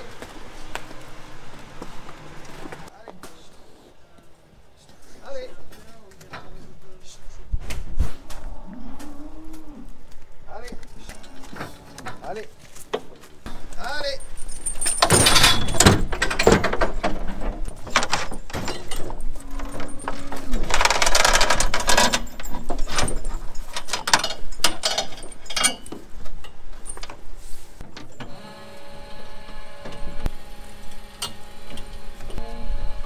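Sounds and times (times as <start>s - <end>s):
metal crate clanking and rattling: 11.0s - 27.2s
hydraulic winch motor humming: 28.2s - 33.0s.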